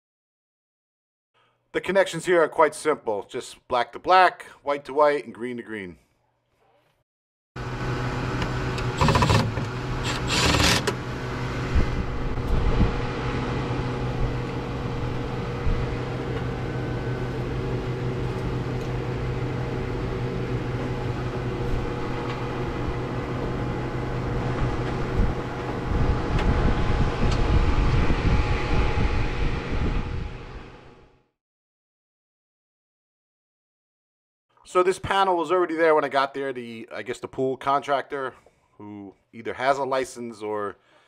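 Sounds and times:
steady mechanical hum: 0:07.6 - 0:31.1
cordless drill whirring: 0:08.4 - 0:11.0.

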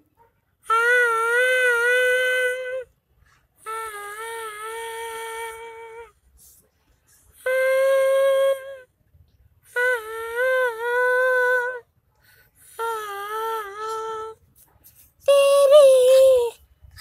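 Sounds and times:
boy singing long notes: 0:00.7 - 0:02.9, 0:03.6 - 0:06.1, 0:07.4 - 0:08.9, 0:09.7 - 0:11.8, 0:12.7 - 0:14.4, 0:15.2 - 0:16.6.

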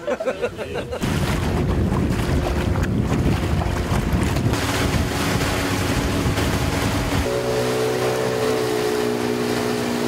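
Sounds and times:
wind buffeting microphone: 0:00.8 - 0:07.5
boat motor running: 0:01.0 - 0:10.0
water rushing past hull: 0:01.0 - 0:10.0.

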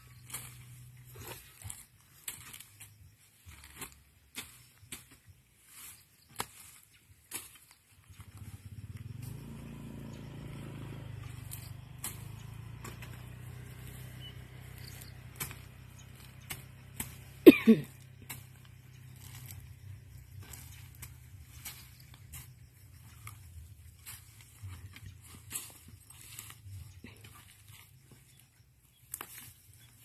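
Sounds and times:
hand tools cutting grass: 0:00.0 - 0:30.0
motor engine humming: 0:08.0 - 0:29.0.

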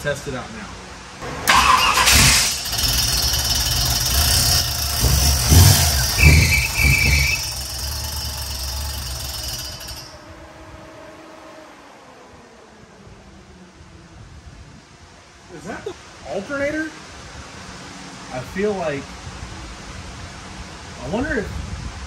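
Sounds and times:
engine revving: 0:01.2 - 0:13.7
brief high squeal: 0:05.8 - 0:07.8.

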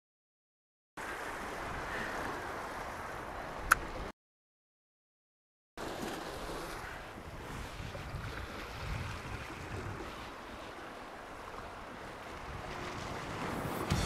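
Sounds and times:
sea surf: 0:01.0 - 0:04.1, 0:05.8 - 0:14.0
wind on microphone: 0:06.8 - 0:10.4, 0:11.9 - 0:14.0.

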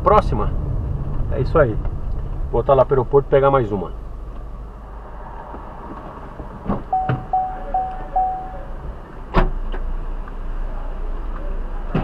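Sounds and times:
car cabin rumble: 0:05.9 - 0:09.9
short electronic beeps: 0:06.9 - 0:08.7.

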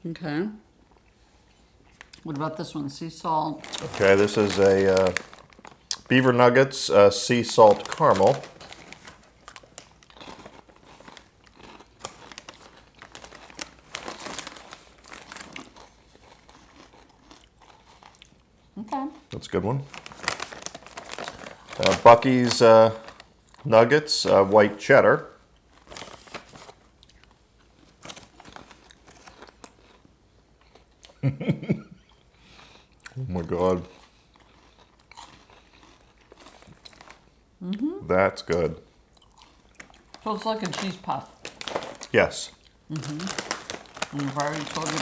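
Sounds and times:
foil snack bag crinkling: 0:03.6 - 0:18.2, 0:19.6 - 0:23.7, 0:25.6 - 0:30.1, 0:32.6 - 0:37.3, 0:39.4 - 0:45.0
cheese puffs crunching: 0:03.6 - 0:18.4, 0:19.4 - 0:24.4, 0:25.5 - 0:31.0, 0:32.5 - 0:37.3, 0:38.4 - 0:45.0.

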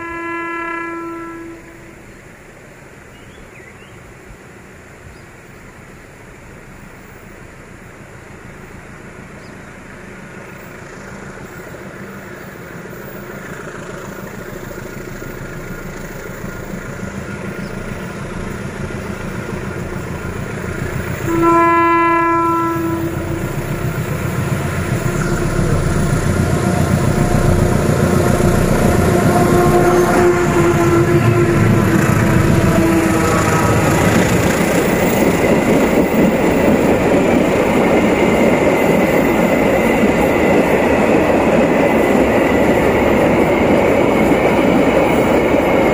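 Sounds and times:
train horn blast: 0:00.0 - 0:02.0, 0:21.2 - 0:23.8, 0:25.0 - 0:34.6
diesel locomotive engine working hard: 0:05.8 - 0:45.9.

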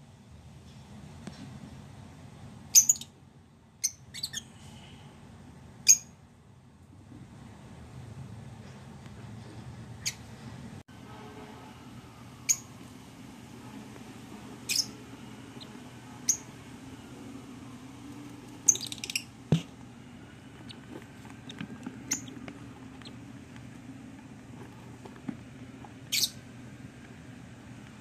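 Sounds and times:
low steady hum: 0:00.0 - 0:28.0
bird chicks squeaking: 0:02.7 - 0:03.1, 0:03.8 - 0:04.5, 0:14.7 - 0:16.5, 0:18.4 - 0:19.4, 0:20.5 - 0:23.3, 0:26.1 - 0:26.4.

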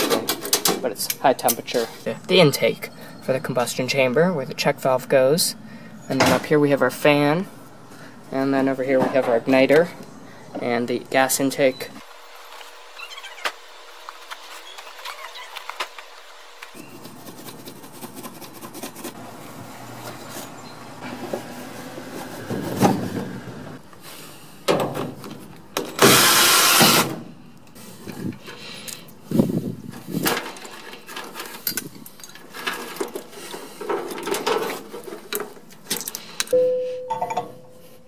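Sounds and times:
metal parts clicking and rattling: 0:30.2 - 0:36.5.

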